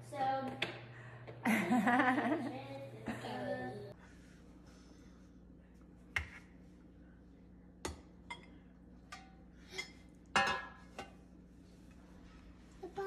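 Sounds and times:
metal cake pan clanking: 9.1 - 11.1.

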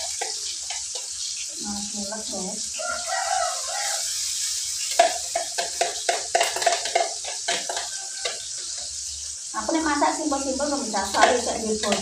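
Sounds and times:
oil sizzling in frying pan: 0.0 - 12.0
spoon scraping against cup: 3.8 - 9.0.

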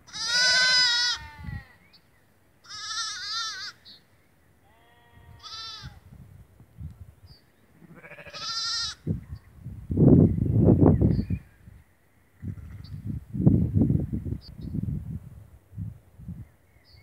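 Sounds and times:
sheep bleating: 0.1 - 1.8, 2.6 - 3.8, 4.6 - 6.0, 7.8 - 9.0
lower fainter sheep call: 0.1 - 1.9, 2.6 - 3.9, 4.6 - 6.0, 7.8 - 9.1.

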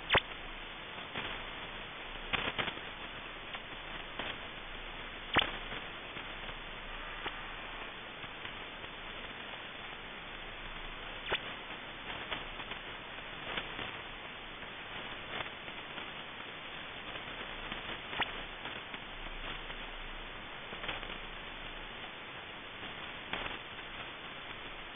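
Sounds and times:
sharp radio clicks: 0.0 - 0.4, 2.3 - 2.8, 5.3 - 6.6, 11.2 - 11.5
shortwave radio hiss: 0.0 - 24.9.

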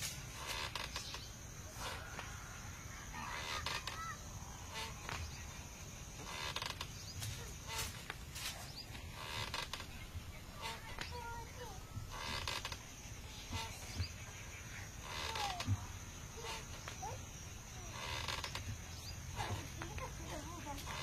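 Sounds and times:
insect drone: 0.0 - 21.0
swing creaking: 0.0 - 21.0
bird chirps: 17.8 - 19.4.

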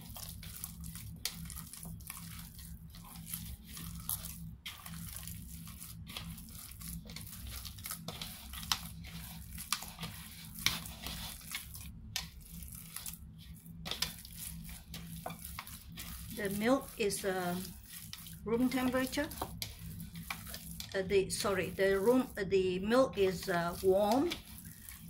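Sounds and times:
dough squishing and tearing: 0.0 - 25.0
steady low hum: 0.0 - 25.0.

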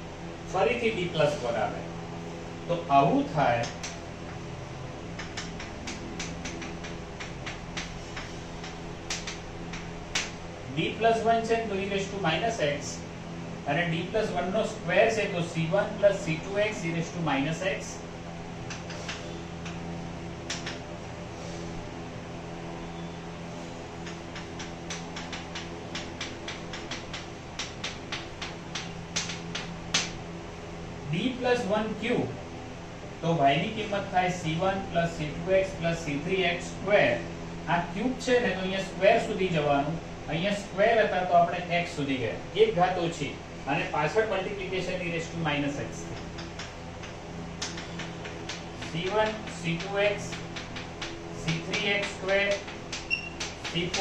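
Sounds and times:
steady low hum: 0.0 - 54.0
chalk tapping on a chalkboard: 5.2 - 10.3, 24.0 - 30.2, 47.6 - 54.0.

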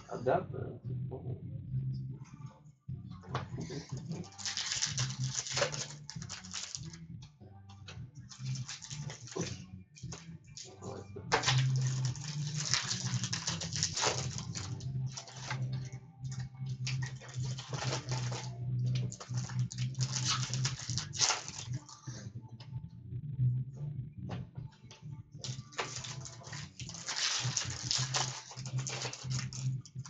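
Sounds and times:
low hum: 0.0 - 4.2
wrappers crinkling and rustling: 4.1 - 7.0, 8.3 - 9.5, 11.3 - 15.7, 16.8 - 21.8, 25.4 - 30.0.

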